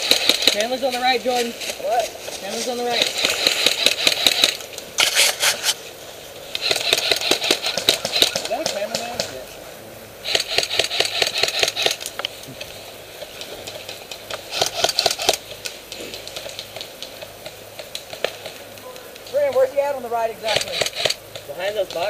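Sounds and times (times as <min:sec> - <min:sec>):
airsoft rifle firing full auto: 0:00.0 - 0:00.8, 0:02.9 - 0:05.1, 0:06.6 - 0:09.1, 0:10.2 - 0:12.0, 0:14.5 - 0:15.4, 0:20.5 - 0:21.2.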